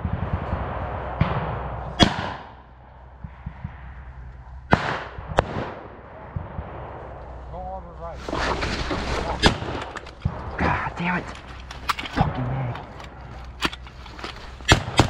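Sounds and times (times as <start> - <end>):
blank gunshots echoing: 0.0 - 2.6, 4.7 - 7.0, 13.7 - 15.0
low knocking and rumble: 0.0 - 15.0.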